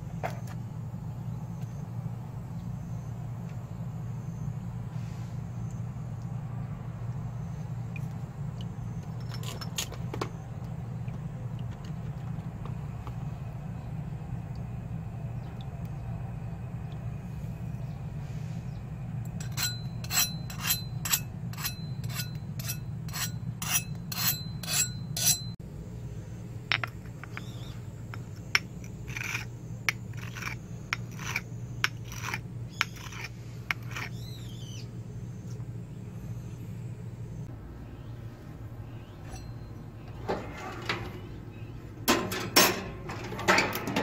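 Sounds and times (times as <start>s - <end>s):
steady low hum: 0.0s - 44.0s
file scraping steel edge: 19.4s - 25.6s, 28.6s - 34.2s.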